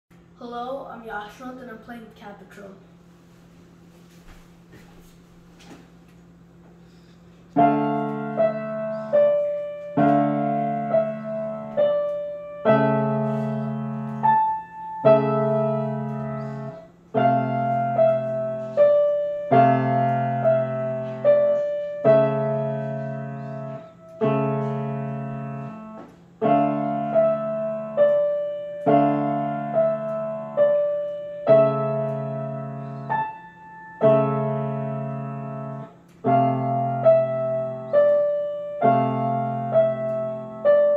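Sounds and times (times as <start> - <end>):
solo grand piano: 7.6 - 40.9.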